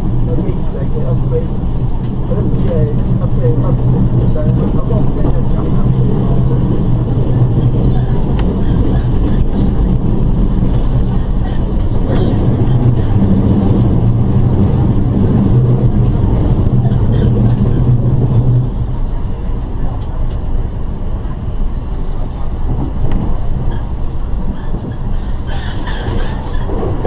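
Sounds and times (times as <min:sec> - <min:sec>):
low motor hum: 0:00.0 - 0:25.1
train wheels rumbling on rail: 0:00.0 - 0:27.0.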